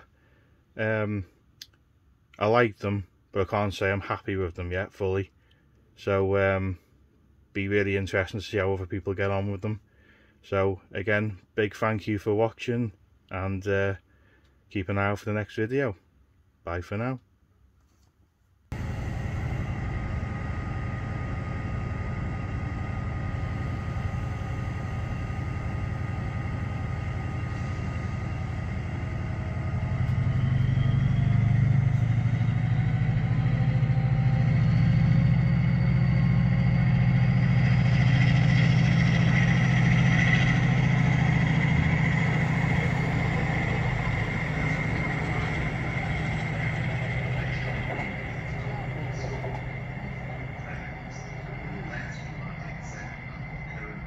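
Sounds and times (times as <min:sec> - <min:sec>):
engine running: 0:18.7 - 0:54.0
rising whine: 0:18.7 - 0:54.0.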